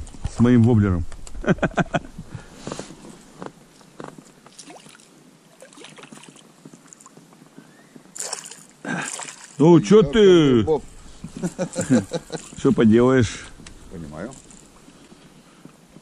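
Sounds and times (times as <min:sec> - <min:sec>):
fish splashing at water surface: 0:04.5 - 0:06.4, 0:08.2 - 0:09.6.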